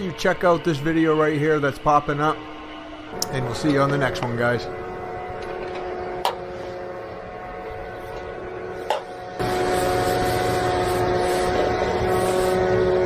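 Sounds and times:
small gas engine running: 0:09.0 - 0:13.0.

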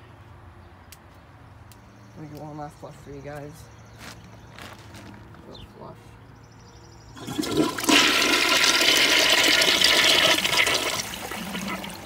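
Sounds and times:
toilet flushing: 0:07.2 - 0:12.0.

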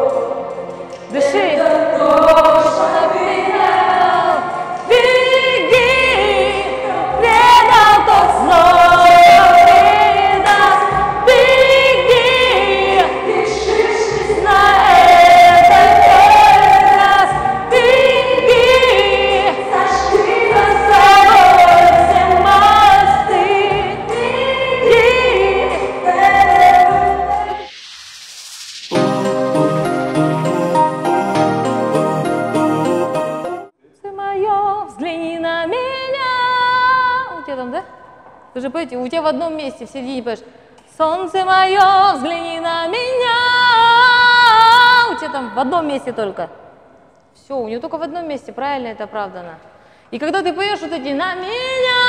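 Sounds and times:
woman singing with vibrato: 0:01.1 - 0:27.7, 0:34.0 - 0:40.4, 0:41.0 - 0:46.6, 0:47.5 - 0:52.0
backing track with bass line: 0:28.9 - 0:33.7.

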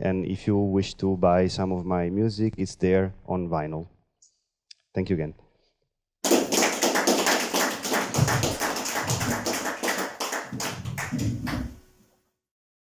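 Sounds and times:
audience applauding: 0:06.2 - 0:11.9.

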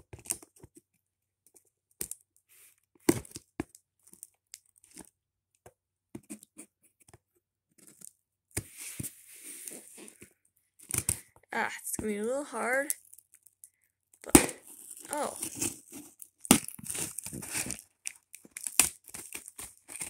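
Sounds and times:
packing tape tearing: 0:14.3 - 0:20.0
fingers scratching cardboard: 0:14.7 - 0:17.8.

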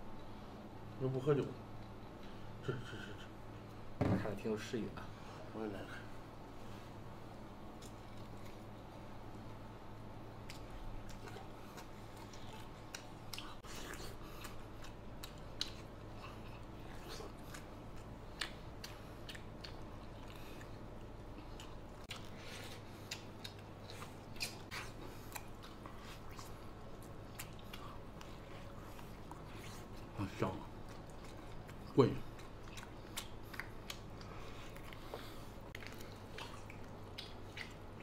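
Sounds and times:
steady low hum: 0:00.0 - 0:38.0
chewing and biting meat: 0:10.2 - 0:38.0.

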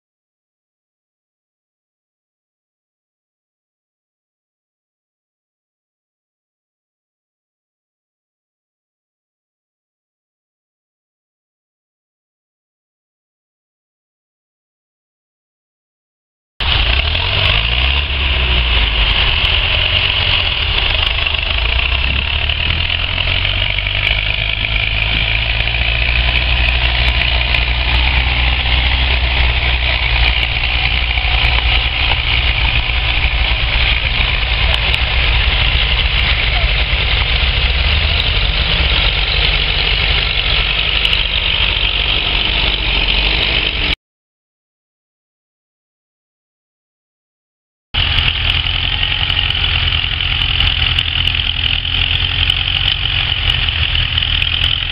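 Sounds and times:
tractor diesel engine under load: 0:16.6 - 0:44.0, 0:48.0 - 0:54.9.

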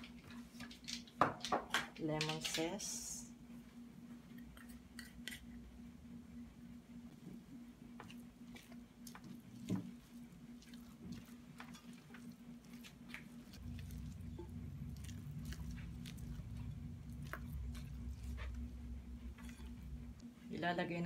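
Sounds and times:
faint steady hum: 0:00.0 - 0:21.0
spatula folding batter: 0:07.9 - 0:19.8
low rumble: 0:13.6 - 0:20.4
spatula scraping glass bowl: 0:19.3 - 0:19.9.

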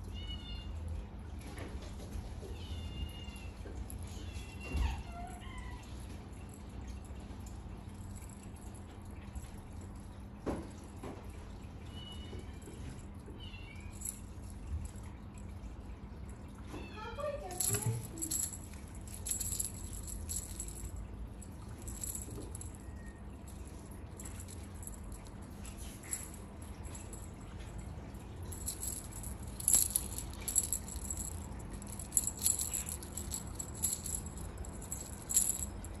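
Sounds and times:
small jingle bells jingling: 0:11.9 - 0:16.0, 0:17.2 - 0:36.0.

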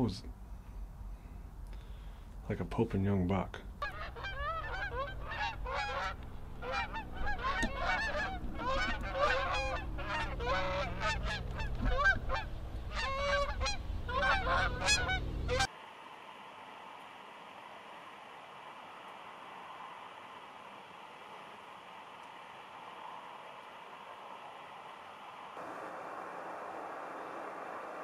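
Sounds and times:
faint steady hiss: 0:00.0 - 0:28.0
geese honking: 0:03.8 - 0:15.7.

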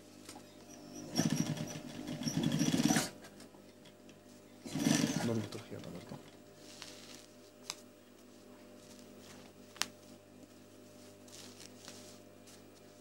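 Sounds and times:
fabric rustling: 0:06.5 - 0:13.0.

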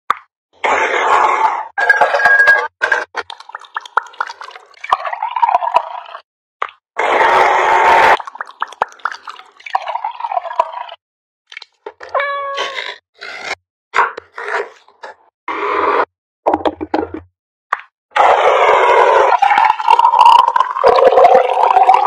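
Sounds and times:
electric blender chopper whirring: 0:07.0 - 0:08.1.

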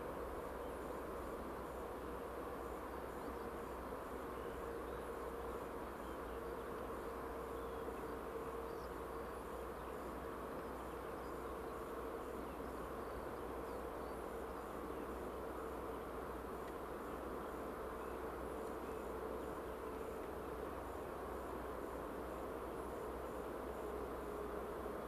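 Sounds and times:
airplane cabin drone: 0:00.0 - 0:25.0.

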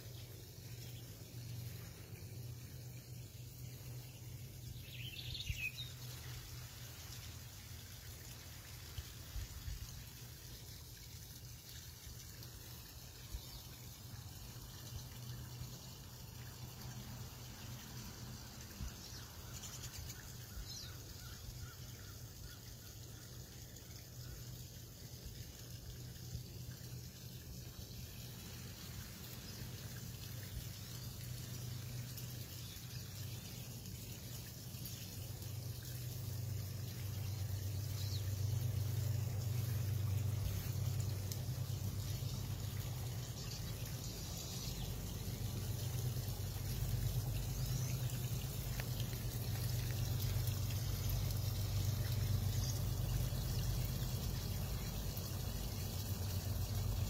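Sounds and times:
water trickling and pouring: 0:00.0 - 0:57.0.

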